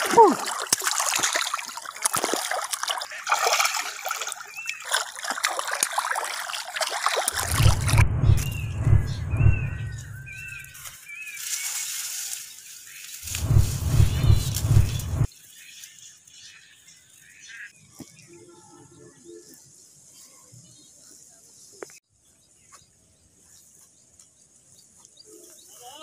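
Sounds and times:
fish splashing in water: 0.0 - 8.0.

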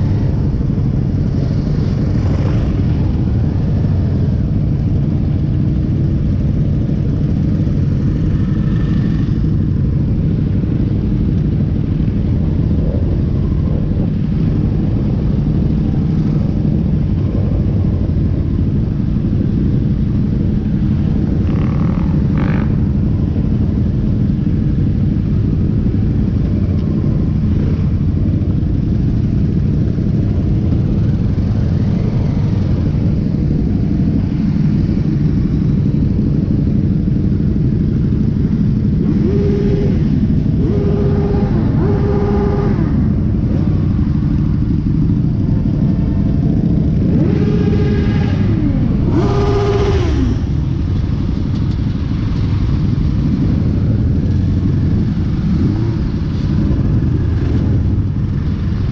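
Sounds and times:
motorcycle engines rumbling: 0.0 - 58.9.

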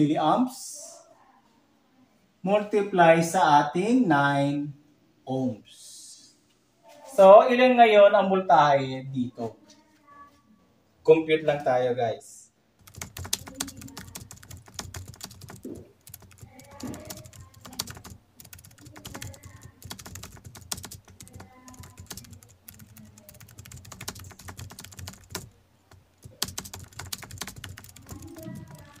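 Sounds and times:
calculator keys clicking: 12.8 - 29.0.

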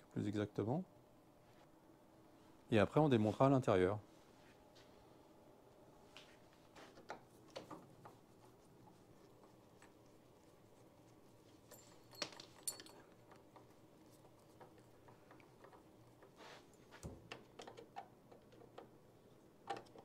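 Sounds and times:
screwdriver and screws ticking: 17.3 - 19.0.

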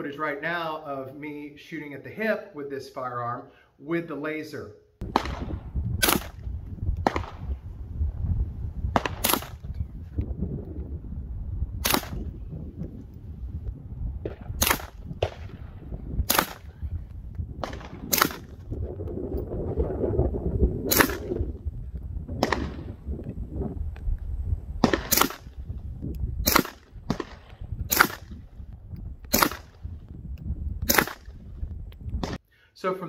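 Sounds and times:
suppressed gunshots: 5.0 - 7.7, 8.9 - 9.9, 11.8 - 12.4, 14.2 - 16.8, 17.5 - 18.7, 20.8 - 21.4, 22.4 - 23.0, 24.8 - 25.7, 26.4 - 28.6, 29.2 - 29.9, 30.8 - 31.5, 32.2 - 32.4
steady low rumble: 5.0 - 32.4.

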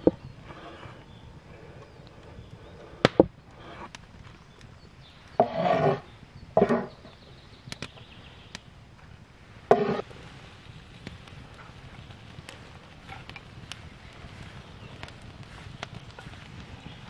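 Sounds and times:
knife scraping cutting board: 5.4 - 6.0, 9.7 - 10.0.

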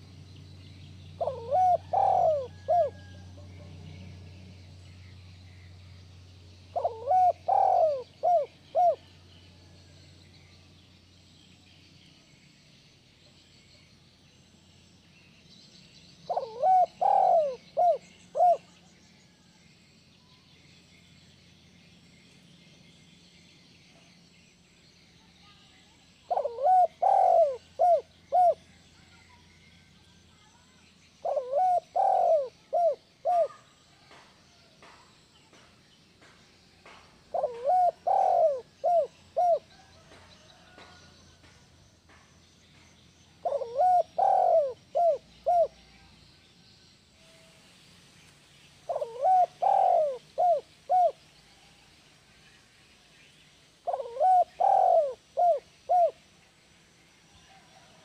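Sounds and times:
dove cooing: 1.2 - 4.0, 6.7 - 9.2, 16.3 - 18.7, 26.2 - 28.7, 31.2 - 33.6, 37.3 - 41.0, 43.4 - 45.8, 48.9 - 51.2, 53.8 - 56.2.

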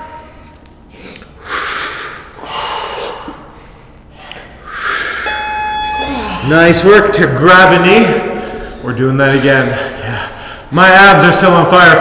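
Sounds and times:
heavy breathing: 0.2 - 5.4, 8.2 - 10.8
electronic timer beep: 5.2 - 6.9.

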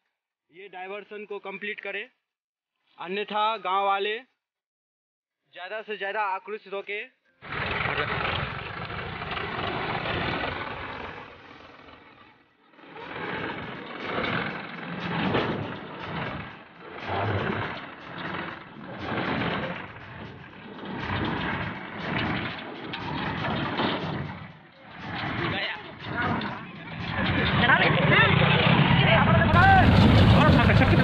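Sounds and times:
water splashing around wheels: 7.5 - 12.2, 12.8 - 26.4
diesel tractor running under load: 7.6 - 28.9, 29.5 - 31.0.

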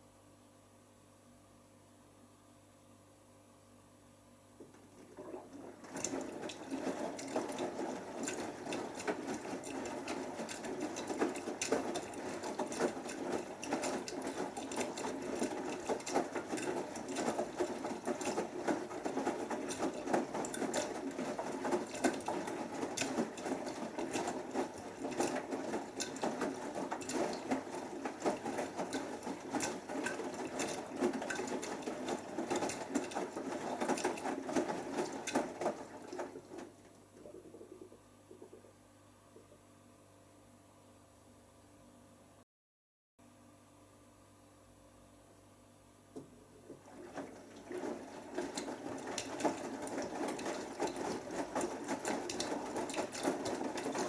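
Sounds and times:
washing machine drum tumbling: 4.6 - 36.9, 46.2 - 54.0.

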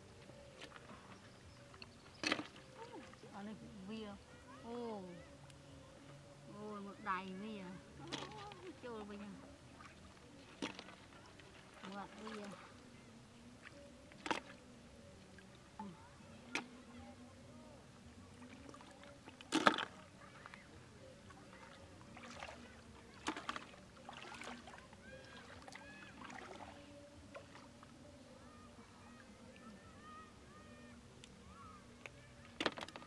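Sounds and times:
shallow water splashing: 0.0 - 5.3, 6.5 - 33.0.

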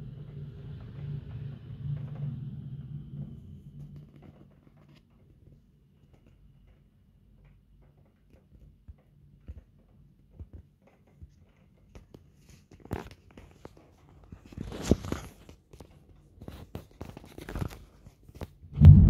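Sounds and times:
loud low rumble: 0.0 - 4.1, 18.8 - 19.0.

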